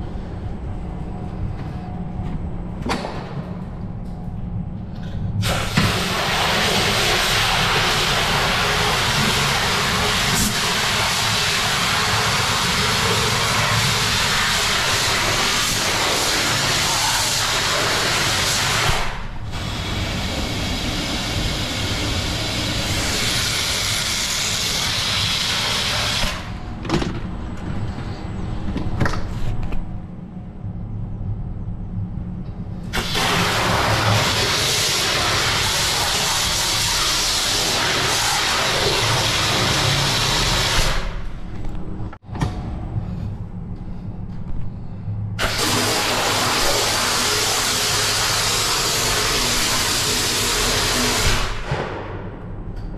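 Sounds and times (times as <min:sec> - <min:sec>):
water jet hissing and splashing: 0:05.4 - 0:26.5, 0:32.9 - 0:41.2, 0:45.4 - 0:51.7.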